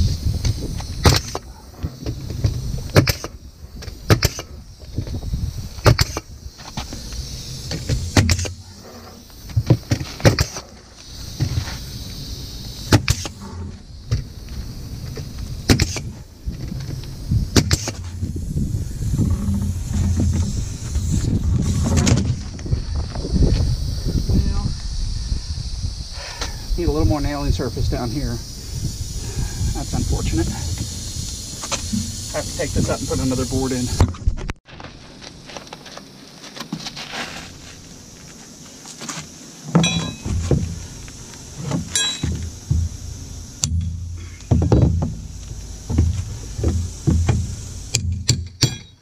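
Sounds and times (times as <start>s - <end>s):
nail gun firing: 3.0s - 3.4s.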